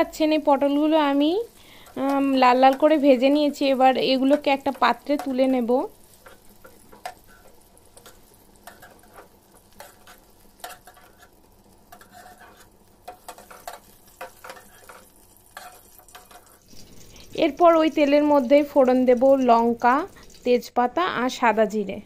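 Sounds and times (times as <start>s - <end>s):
oil sizzling: 0.0s - 22.0s
metal spatula scraping frying pan: 6.1s - 17.3s.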